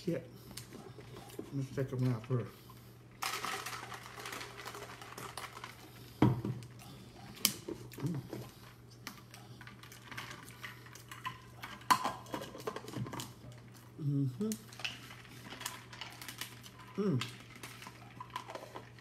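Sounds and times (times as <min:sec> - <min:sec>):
dishes and utensils clattering: 0:09.8 - 0:13.4.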